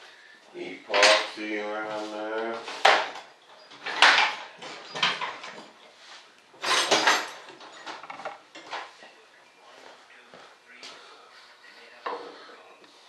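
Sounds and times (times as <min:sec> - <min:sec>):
tools clattering and knocking: 0:00.9 - 0:01.5, 0:02.7 - 0:06.0, 0:06.6 - 0:09.0.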